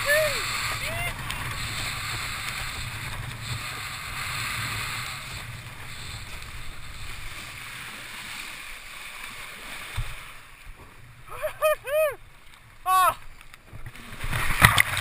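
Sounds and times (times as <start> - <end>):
wind buffeting microphone: 0.0 - 7.6
water rushing under board: 0.0 - 15.0.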